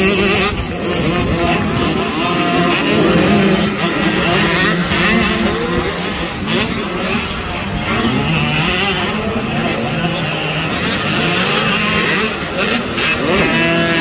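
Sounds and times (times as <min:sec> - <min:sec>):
motocross bike engines revving: 0:00.0 - 0:14.0.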